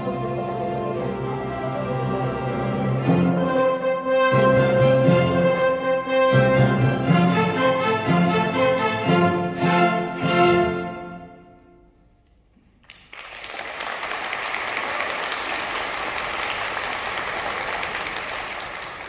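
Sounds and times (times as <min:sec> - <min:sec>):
orchestra chord with bassoon: 0:00.0 - 0:11.4
audience applause: 0:12.8 - 0:19.0.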